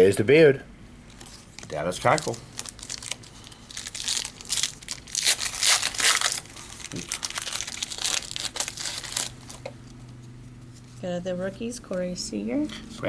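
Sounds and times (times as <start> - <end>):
wrapper crinkling: 1.1 - 10.0.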